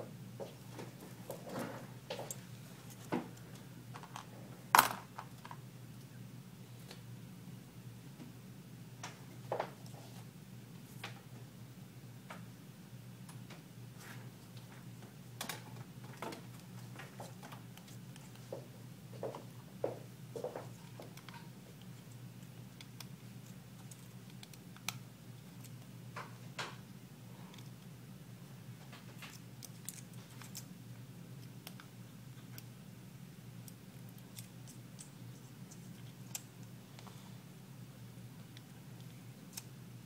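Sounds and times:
steady low hum: 0.0 - 40.0.

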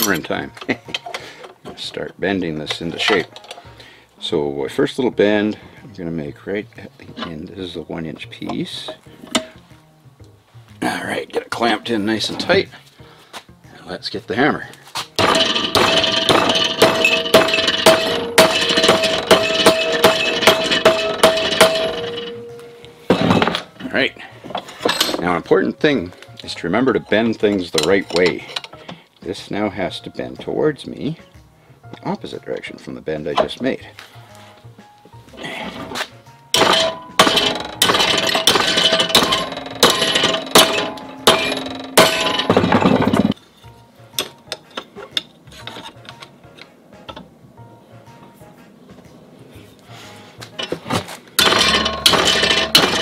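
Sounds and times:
hammer striking metal bar: 15.2 - 23.8, 36.6 - 43.4, 51.4 - 53.0.

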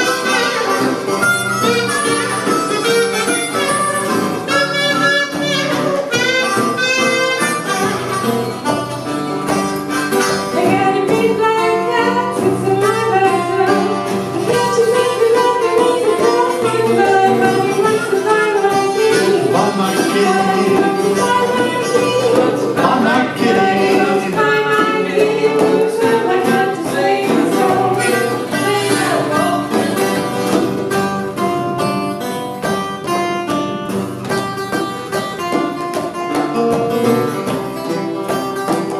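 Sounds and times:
buzzing kazoo: 0.0 - 8.9, 27.0 - 30.6
acoustic guitar: 0.0 - 38.9
hand drum: 0.0 - 38.9
harmonica: 0.0 - 38.9
person singing: 10.5 - 30.2.

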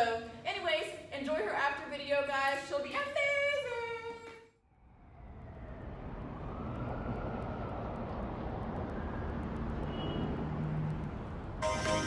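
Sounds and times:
passing vehicle rushing: 4.7 - 12.0.

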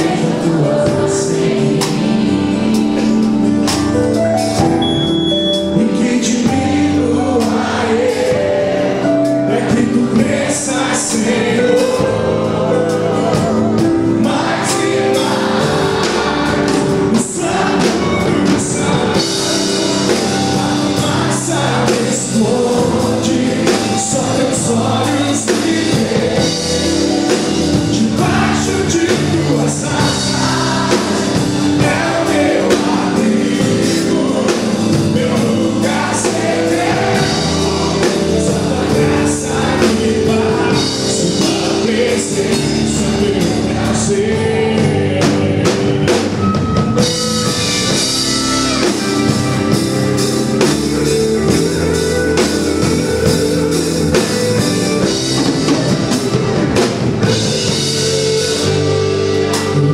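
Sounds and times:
person singing: 0.0 - 47.2
bass guitar: 0.0 - 59.9
drum kit: 0.0 - 59.9
electric guitar: 8.4 - 59.9.

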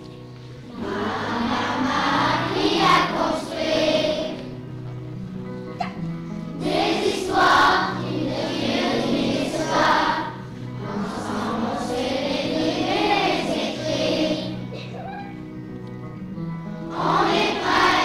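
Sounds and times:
instrumental accompaniment: 0.0 - 18.0
children singing in unison: 0.7 - 4.6, 6.6 - 14.9, 16.9 - 18.0.

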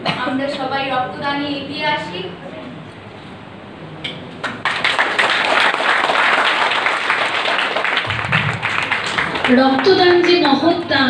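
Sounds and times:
audience applauding: 4.4 - 10.6.

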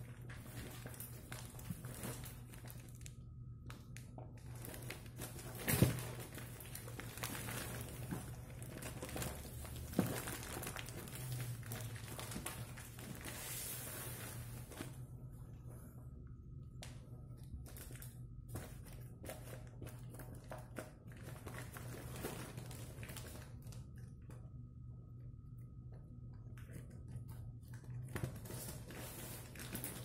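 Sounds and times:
plastic wrapping crinkling: 0.0 - 15.0, 17.4 - 23.9, 28.1 - 30.0
steady low hum: 0.0 - 30.0.

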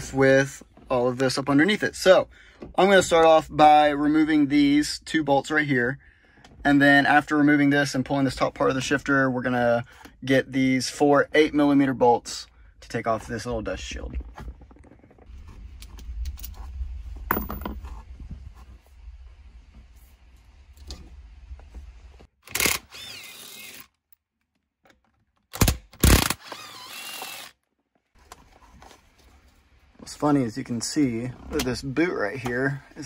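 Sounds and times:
tools and metal parts clinking: 17.3 - 17.9
low handling rumble: 29.6 - 33.0.

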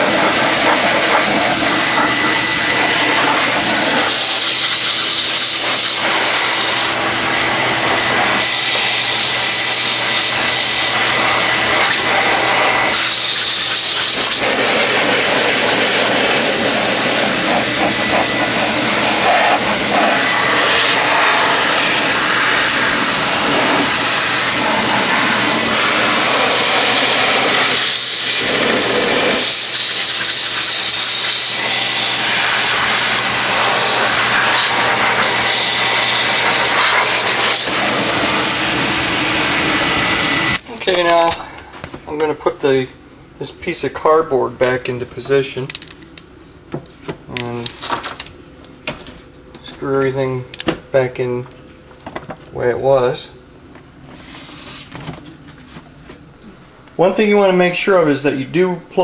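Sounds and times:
vacuum cleaner blowing air: 0.0 - 42.8, 54.0 - 55.0.

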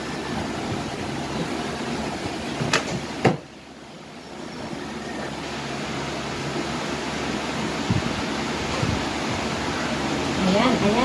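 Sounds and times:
steady background hum: 0.0 - 11.0.

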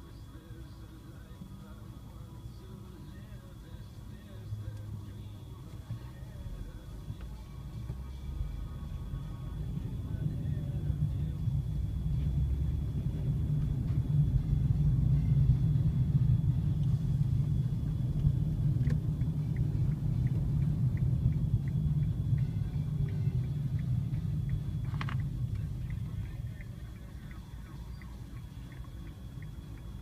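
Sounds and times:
car engine and road rumble: 0.0 - 30.0
light ticking: 17.8 - 30.0.

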